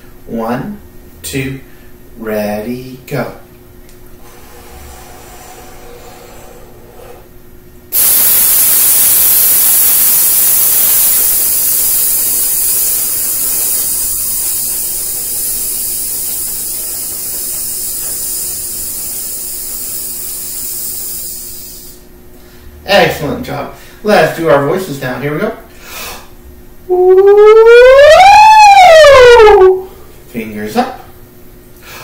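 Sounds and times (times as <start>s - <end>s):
man's long hissed exhale: 4.2s - 7.3s, 18.3s - 22.1s, 25.8s - 26.3s.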